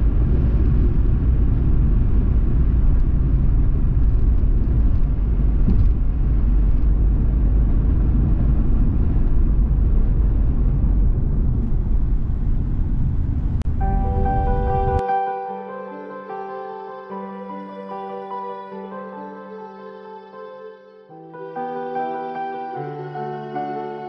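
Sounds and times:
tyre and engine rumble: 0.0s - 15.0s.

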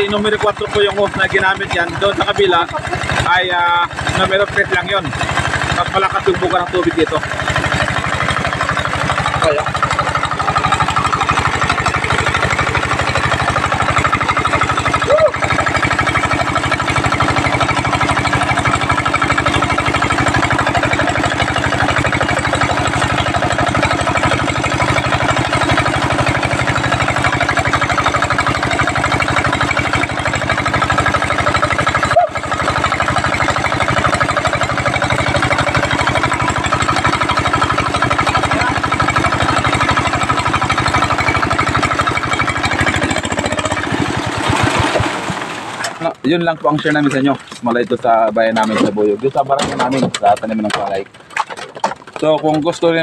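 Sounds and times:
small diesel engine running: 0.0s - 53.0s
water jet pouring: 9.4s - 49.3s.

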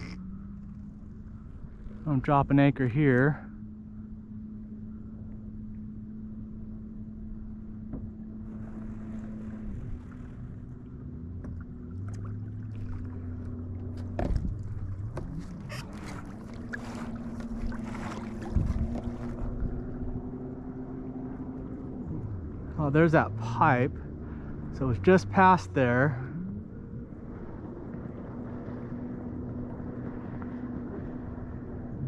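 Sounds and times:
motor hum: 0.0s - 32.0s.

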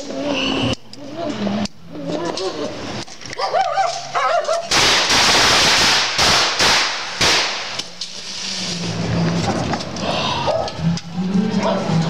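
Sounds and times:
fireworks crackling: 4.7s - 9.4s.

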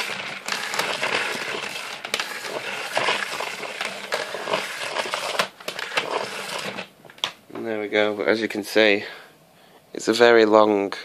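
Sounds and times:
power cord scraping out of reel: 0.0s - 6.9s.

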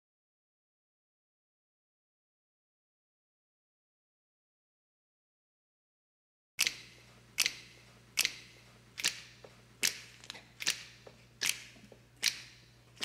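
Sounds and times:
low steady hum: 6.6s - 13.0s
sharp percussive clicks: 6.6s - 13.0s.

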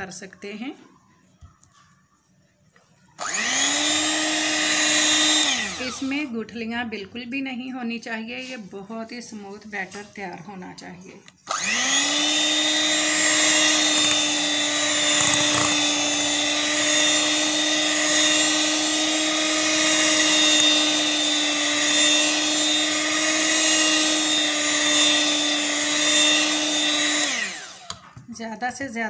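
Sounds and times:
electric hand mixer running: 3.2s - 6.4s, 11.4s - 28.1s.

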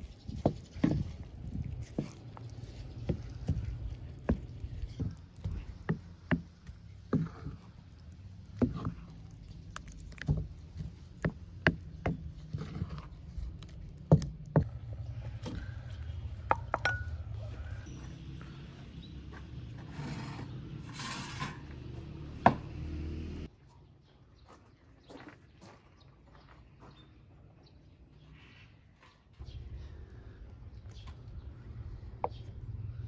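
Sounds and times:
spoon stirring thick yogurt: 0.1s - 14.8s.

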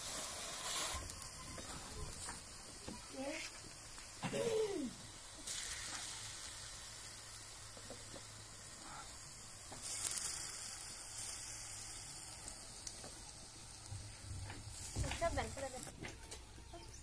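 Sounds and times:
batter sizzling in hot oil: 0.0s - 17.0s.

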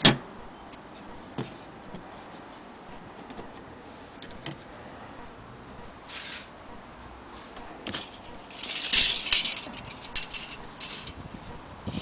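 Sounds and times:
metal tape measure rattling: 6.1s - 6.5s, 7.9s - 11.3s.

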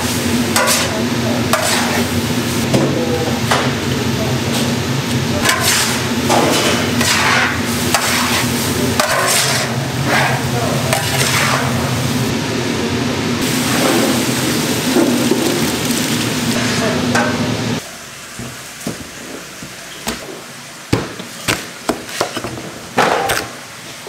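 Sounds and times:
food sizzling in a pan: 0.0s - 2.6s, 5.4s - 10.0s, 13.4s - 20.0s
low machine hum: 0.0s - 20.1s
stirring strokes: 0.5s - 2.1s, 5.4s - 11.8s.

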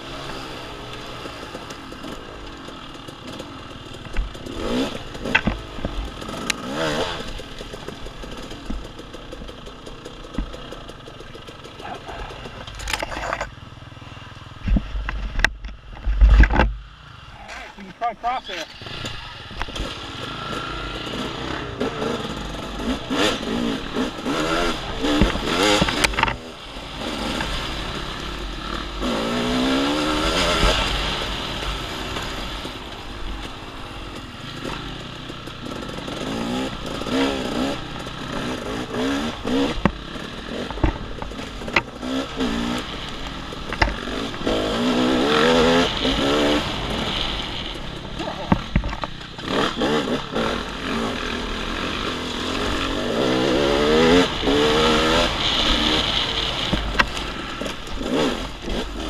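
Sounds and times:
dirt bike engine revving: 0.0s - 14.7s, 16.5s - 59.0s
sharp knocks and clatter: 0.2s - 13.6s, 14.6s - 16.8s, 18.7s - 26.6s, 32.1s - 51.0s.

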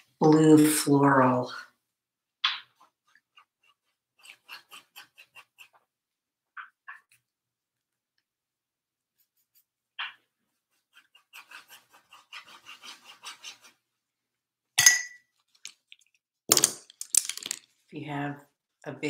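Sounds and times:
paintbrush scrubbing canvas: 2.7s - 6.0s, 9.1s - 9.8s, 10.4s - 14.1s.

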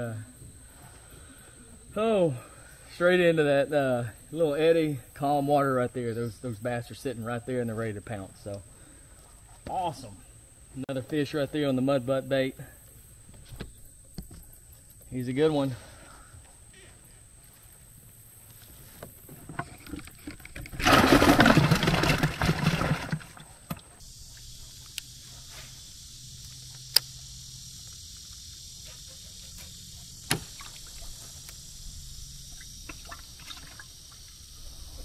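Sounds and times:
steady high hiss: 0.0s - 19.6s, 23.4s - 35.0s
water splashing and sloshing: 19.5s - 24.0s, 32.6s - 34.4s.

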